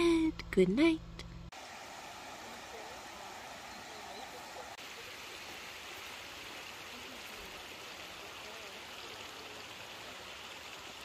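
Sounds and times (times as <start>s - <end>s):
outdoor rushing hiss: 1.5s - 11.0s
faint distant voices: 2.0s - 11.0s.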